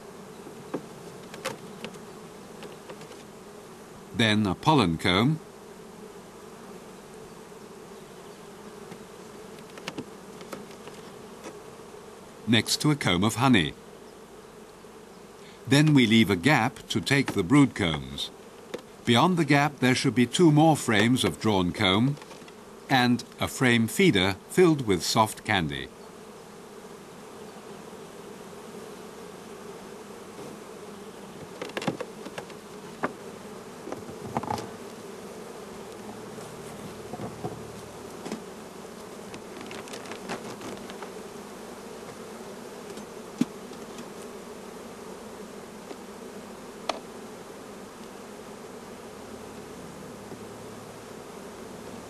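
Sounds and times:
honeybees buzzing: 0.0s - 52.0s
sharp knocks and clicks: 0.7s - 2.0s, 9.6s - 11.6s, 31.4s - 33.2s.

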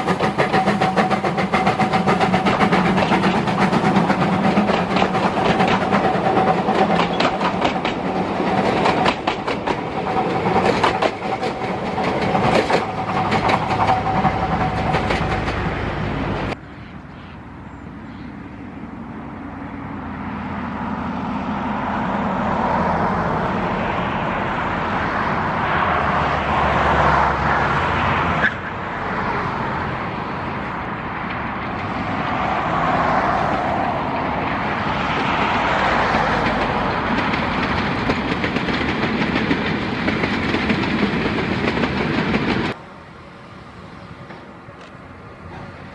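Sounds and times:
steam locomotive working: 0.0s - 16.6s, 29.4s - 45.9s
wheels clicking over rail joints: 0.0s - 16.6s, 30.6s - 42.8s.

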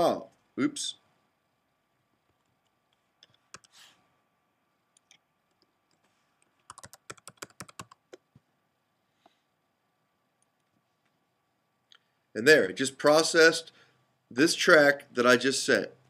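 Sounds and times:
computer keyboard keystrokes: 6.5s - 8.2s.

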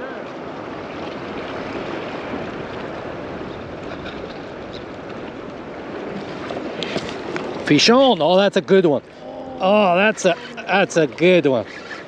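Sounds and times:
small waves lapping: 0.0s - 12.0s.

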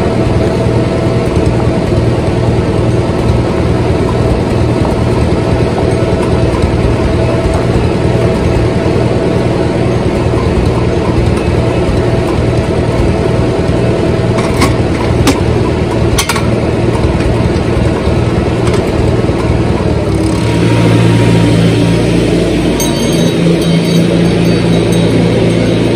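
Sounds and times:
tractor engine idling: 0.0s - 25.9s.

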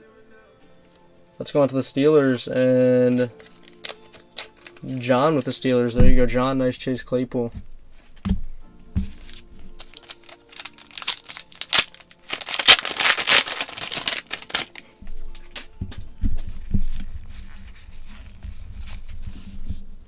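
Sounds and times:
faint background music: 0.0s - 20.0s
cards being handled: 2.7s - 5.6s, 9.0s - 20.0s
wrapper tearing and crinkling: 3.1s - 5.1s, 9.2s - 15.0s.

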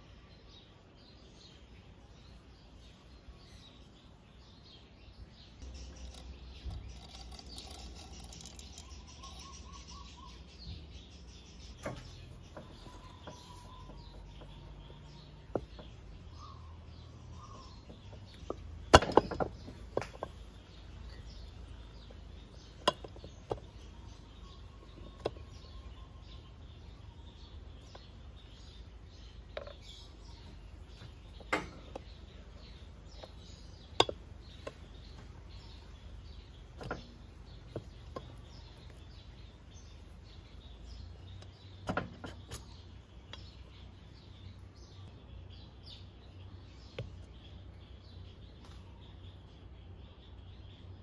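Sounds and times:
metal clicks and knocks: 31.3s - 32.2s, 36.7s - 38.5s.

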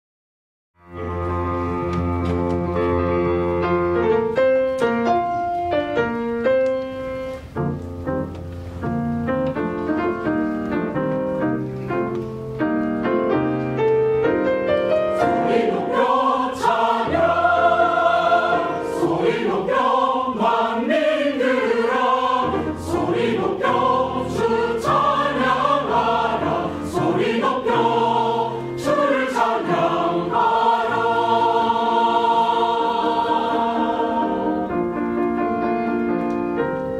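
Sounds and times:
mixed choir singing: 15.1s - 35.2s.

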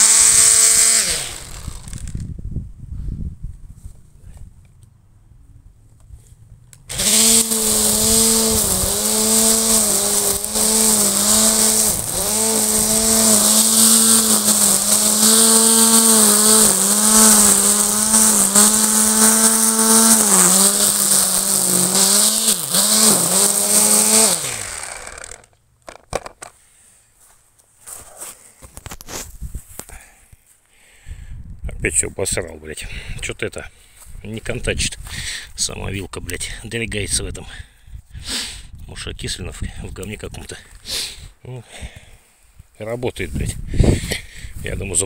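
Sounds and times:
electric string trimmer motor whine: 0.0s - 2.3s, 6.9s - 25.6s.

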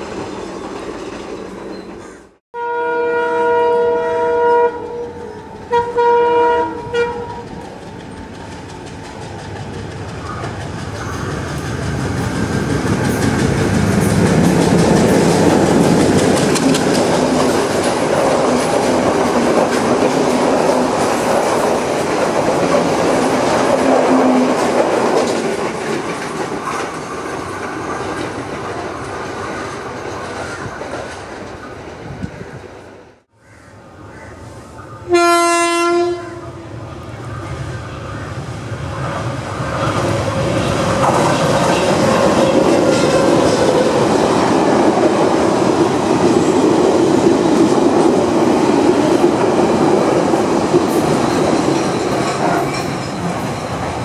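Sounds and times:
diesel locomotive engine: 0.0s - 2.4s, 3.0s - 33.3s, 33.9s - 54.0s
locomotive horn blasts: 2.6s - 7.5s, 35.1s - 36.6s
wheels clattering over rail joints: 6.9s - 31.7s.

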